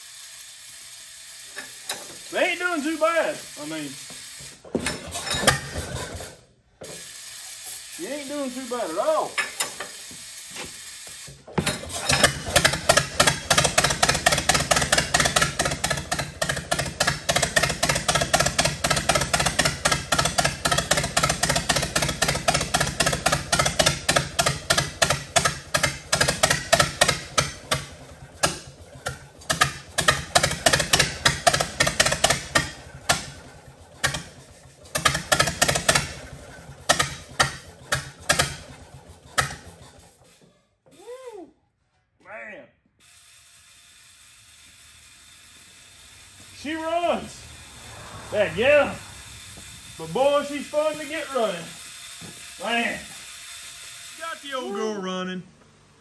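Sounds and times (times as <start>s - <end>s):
tractor engine running fast: 11.6s - 40.3s, 44.4s - 52.8s.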